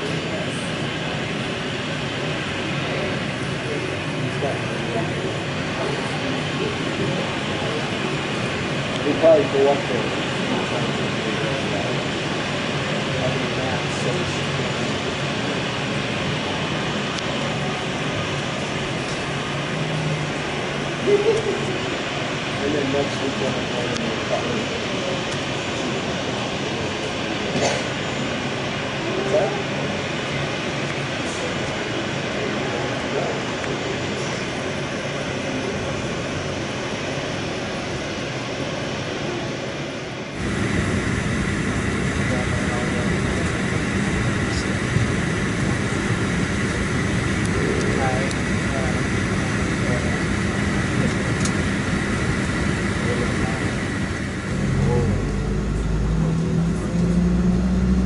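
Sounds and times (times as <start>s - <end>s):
aircraft and ground equipment noise: 0.0s - 58.0s
aircraft cabin hum: 0.0s - 58.0s
jet engines rushing: 0.0s - 58.0s.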